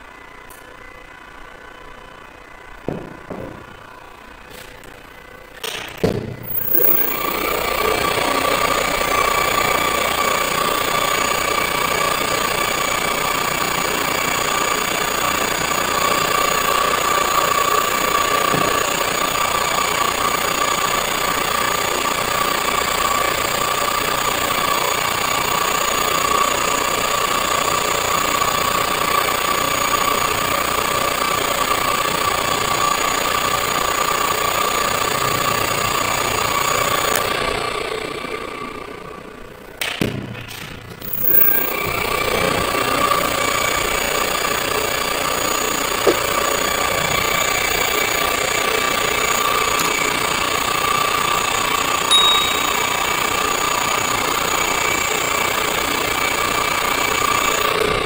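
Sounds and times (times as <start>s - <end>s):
high motor whine: 0.0s - 39.8s, 40.9s - 58.0s
motor running down: 2.8s - 39.5s, 41.0s - 58.0s
electric motor running: 6.4s - 22.6s.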